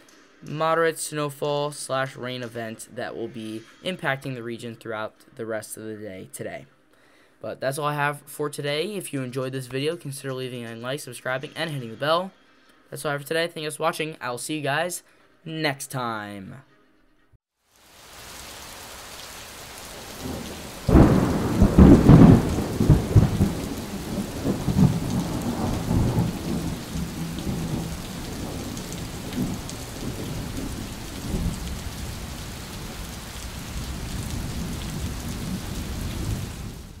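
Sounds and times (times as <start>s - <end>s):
rain hiss: 17.6s - 37.0s
thunder rumbling: 19.9s - 37.0s.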